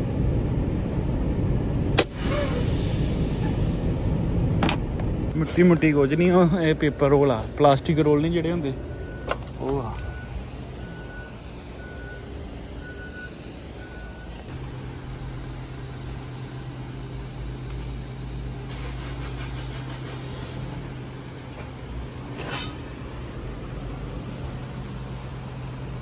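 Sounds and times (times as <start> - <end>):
machinery noise: 5.3 - 26.0
reversing alarm beeping: 8.3 - 14.5.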